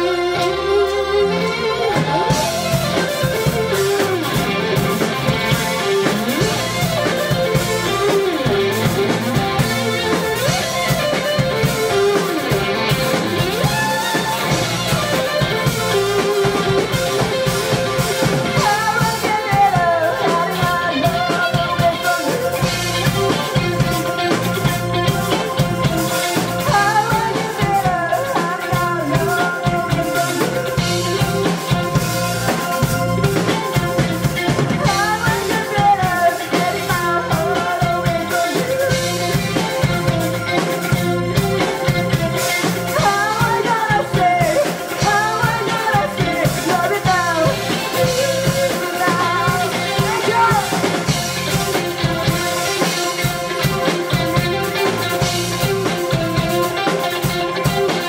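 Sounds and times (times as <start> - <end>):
bass guitar: 0.0 - 58.0
drum kit: 0.0 - 58.0
electric guitars: 0.0 - 58.0
man singing: 43.0 - 51.0.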